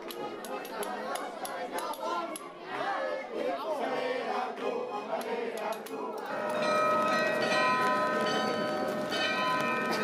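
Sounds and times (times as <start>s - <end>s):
crowd chatter: 0.0s - 10.0s
bells ringing: 6.3s - 10.0s.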